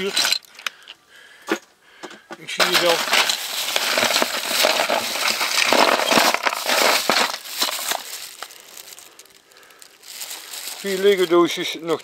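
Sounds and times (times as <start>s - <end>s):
plastic bricks clattering: 0.0s - 0.9s, 2.6s - 12.0s.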